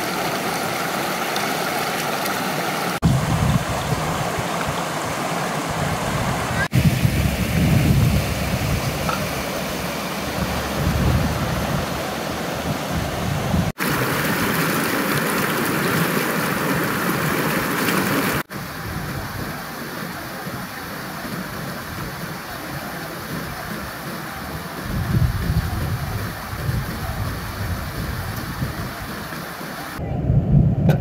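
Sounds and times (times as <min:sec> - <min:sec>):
river rushing over rocks: 0:00.0 - 0:06.8, 0:08.2 - 0:25.4.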